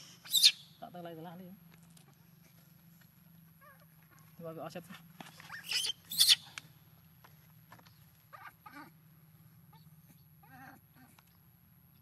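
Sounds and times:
young monkey squeaking: 0:00.0 - 0:00.8, 0:05.3 - 0:06.6.

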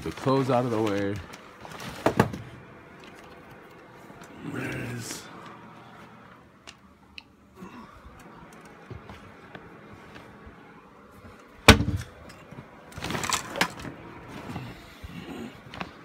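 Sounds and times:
rustling and clattering of contents: 0:00.0 - 0:04.3, 0:11.2 - 0:16.0.

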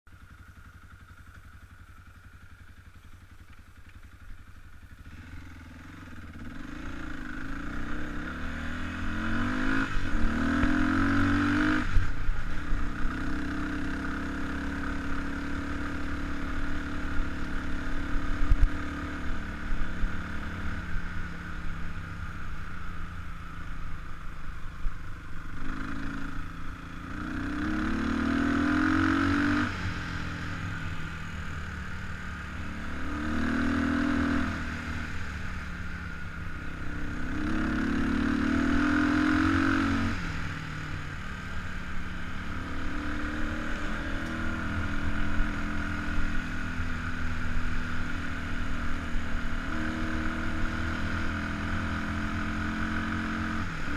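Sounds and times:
dirt bike engine revving: 0:05.0 - 0:21.8, 0:27.0 - 0:35.5, 0:36.9 - 0:53.9.

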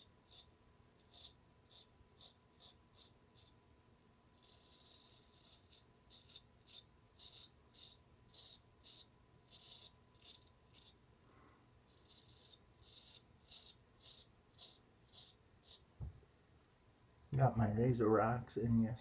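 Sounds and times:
razor scraping stubble: 0:00.0 - 0:03.6, 0:04.4 - 0:11.0, 0:11.9 - 0:16.4.

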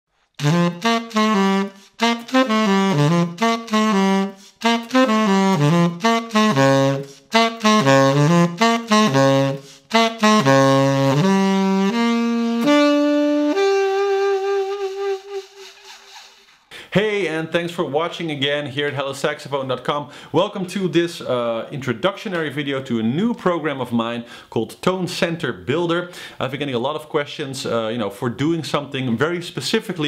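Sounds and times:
tenor saxophone melody: 0:00.4 - 0:16.3.

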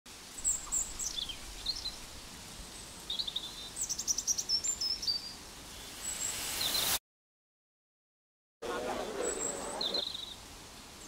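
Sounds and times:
faint steady hiss: 0:00.1 - 0:07.0, 0:08.6 - 0:11.0
birds singing: 0:00.4 - 0:07.0, 0:08.7 - 0:10.4.

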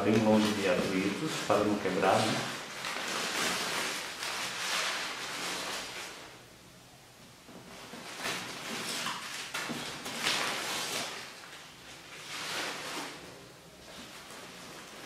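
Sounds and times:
bubble wrap rustling: 0:00.0 - 0:06.6, 0:07.4 - 0:15.0.

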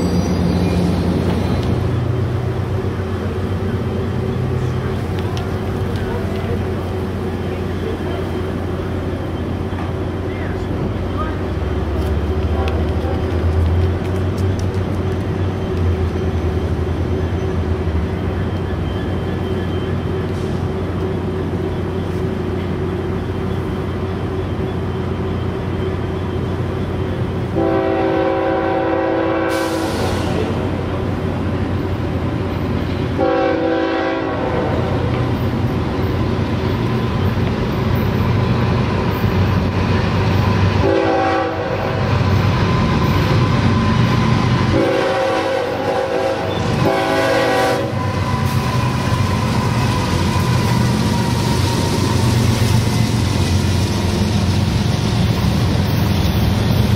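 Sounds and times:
locomotive air horn blasts: 0:27.5 - 0:30.4, 0:33.2 - 0:34.9, 0:40.8 - 0:42.0, 0:44.7 - 0:48.6.

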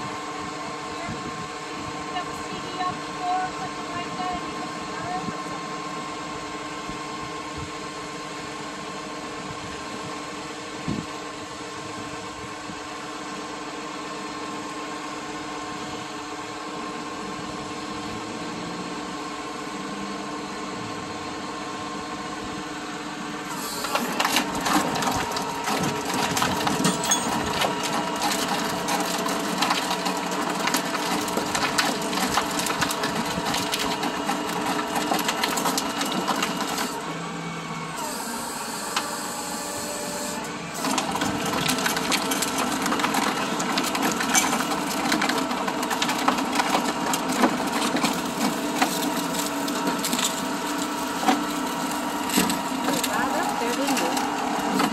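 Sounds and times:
hydraulics humming: 0:00.0 - 0:54.9
car rattling and grinding: 0:40.9 - 0:54.9.

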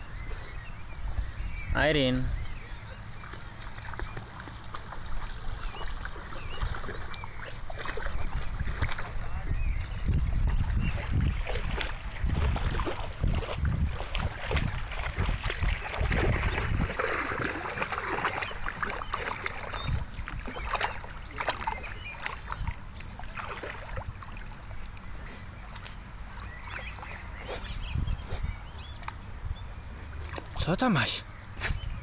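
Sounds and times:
wind rumble on microphone: 0:00.0 - 0:30.7, 0:31.3 - 0:32.0
dog splashing through water: 0:03.0 - 0:27.8.

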